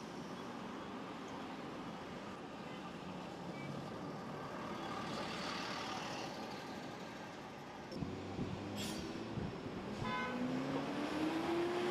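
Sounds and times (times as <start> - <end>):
road traffic noise: 0.0 - 11.9.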